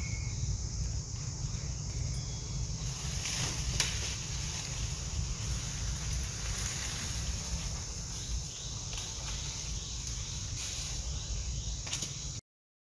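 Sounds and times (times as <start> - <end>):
wind rumbling on microphone: 0.0 - 11.7
high insect drone: 0.0 - 12.4.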